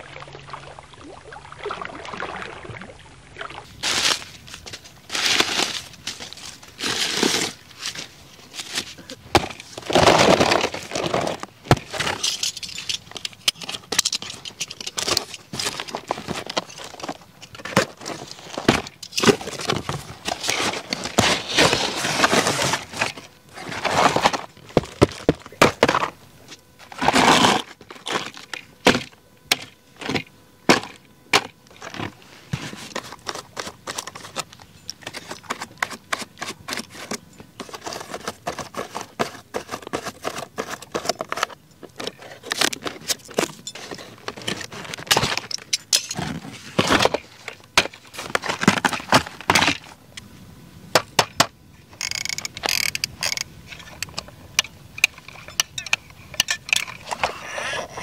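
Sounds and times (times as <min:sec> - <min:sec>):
cardboard rustling and scraping: 0:03.8 - 0:50.0
plastic parts clicking: 0:51.3 - 0:57.3.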